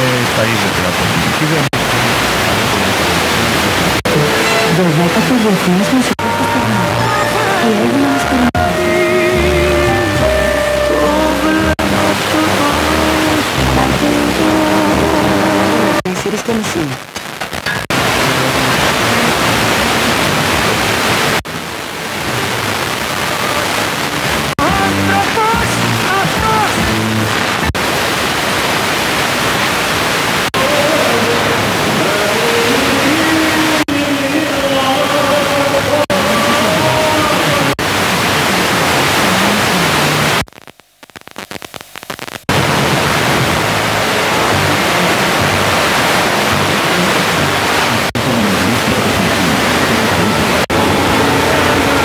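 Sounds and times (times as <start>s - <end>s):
radio static hiss: 0.0s - 9.2s, 11.7s - 31.7s, 35.8s - 52.0s
faint weak signal tones: 3.9s - 12.6s, 36.0s - 42.6s
crackles: 16.0s - 18.1s, 37.7s - 44.6s.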